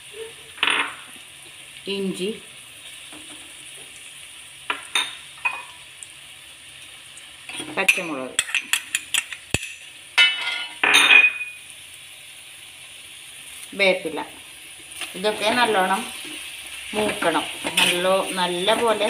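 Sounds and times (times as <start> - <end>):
onions sizzling in a pan: 0.0 - 19.0
spoon clinking and scraping pan: 4.7 - 5.8, 7.5 - 11.6.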